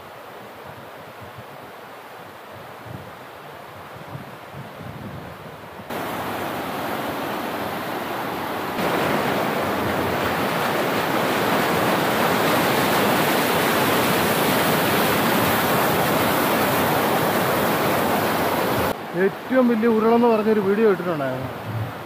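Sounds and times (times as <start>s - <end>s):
river water rushing: 5.6s - 22.0s.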